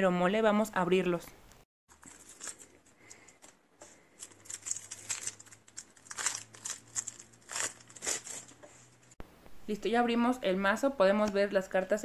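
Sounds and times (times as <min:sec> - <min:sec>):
plastic wrap crinkling: 0:01.9 - 0:09.2.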